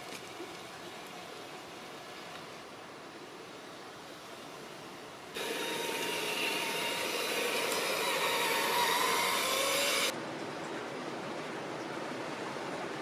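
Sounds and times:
river water rushing: 1.2 - 10.2
toy truck electric motor whining: 5.4 - 10.1.

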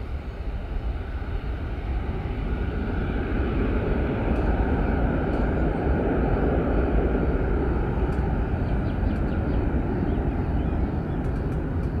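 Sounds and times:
jet airliner rumble: 0.0 - 12.0.

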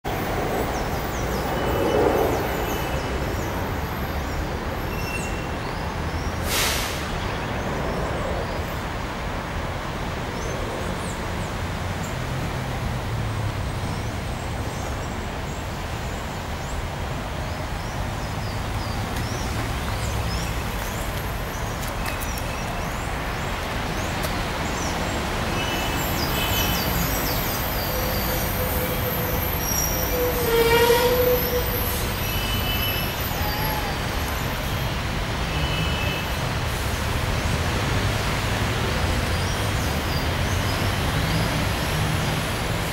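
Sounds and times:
city traffic drone: 0.0 - 42.9
brief hiss: 6.4 - 7.2.

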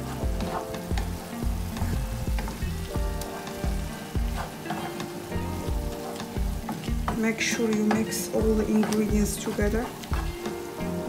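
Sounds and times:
sauce sizzling: 0.0 - 11.0
wooden spatula stirring in pan: 0.0 - 11.0.

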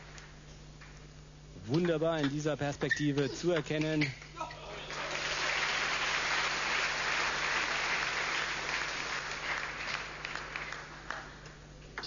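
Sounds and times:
crowd applauding: 4.7 - 11.5.

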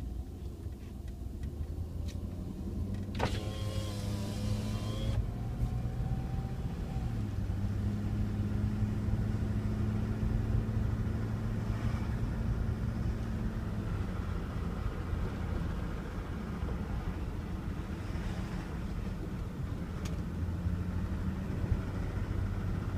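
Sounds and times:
low drivetrain drone: 0.0 - 22.9.

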